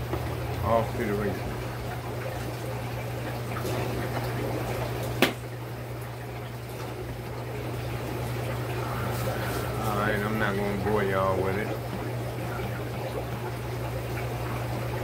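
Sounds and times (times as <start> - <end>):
aquarium water bubbling: 0.0 - 15.0.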